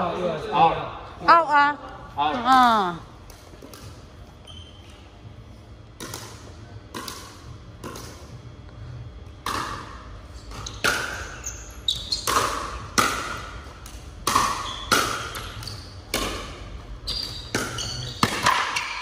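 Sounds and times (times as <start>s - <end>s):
ball bouncing on wooden floor: 10.5s - 19.0s
pickleball paddle hits: 12.3s - 15.5s, 16.1s - 16.6s.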